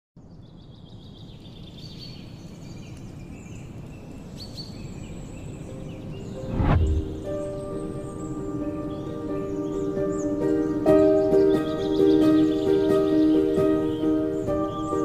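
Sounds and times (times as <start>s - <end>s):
birds chirping and calling: 1.3s - 15.0s
loud rising whoosh: 6.4s - 7.6s
low outdoor rumble: 6.5s - 7.4s.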